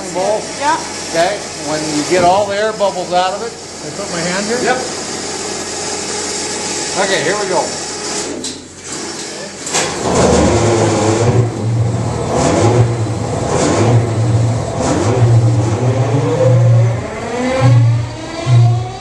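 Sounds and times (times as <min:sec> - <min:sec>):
diesel locomotive engine starting up: 0:07.8 - 0:19.0
whining tones: 0:09.9 - 0:19.0.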